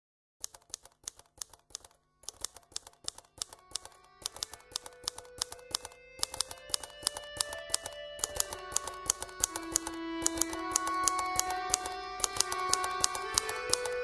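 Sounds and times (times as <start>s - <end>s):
fast typewriter-like clicking: 0.4s - 14.0s
soft music with held notes: 3.4s - 14.0s.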